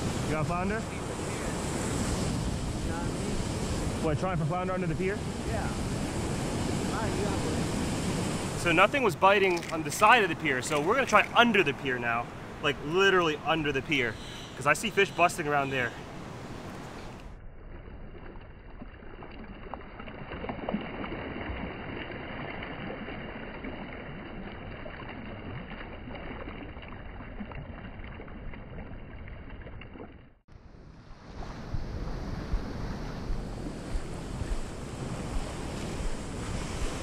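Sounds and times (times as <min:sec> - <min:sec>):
wind on microphone: 0:00.0 - 0:09.2, 0:30.6 - 0:37.0
surf washing: 0:00.0 - 0:17.3, 0:30.9 - 0:37.0
water sloshing and splashing: 0:06.9 - 0:30.4.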